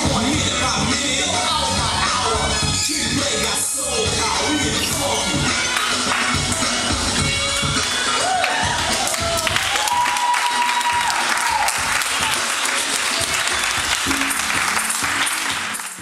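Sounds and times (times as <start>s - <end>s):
music playing: 0.0s - 16.0s
people clapping and cheering: 5.7s - 16.0s.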